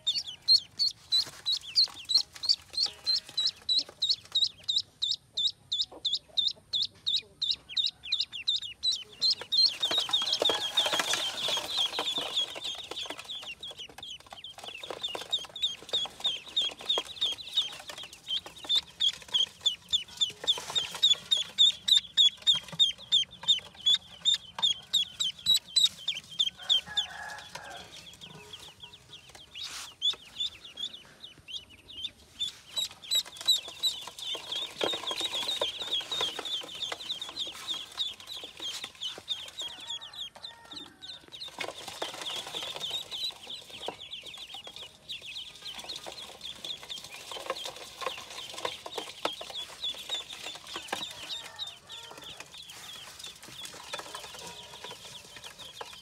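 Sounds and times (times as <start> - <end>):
ducklings peeping: 0.0 - 56.0
rustling: 9.3 - 30.6.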